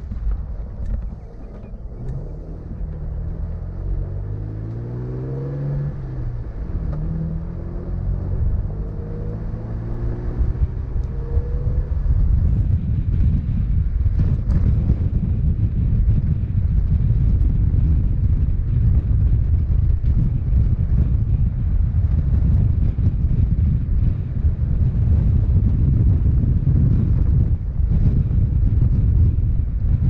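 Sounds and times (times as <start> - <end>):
tyres rumbling on gravel: 0.0 - 4.3
vehicle engine: 0.0 - 30.0
wind buffeting microphone: 0.0 - 30.0.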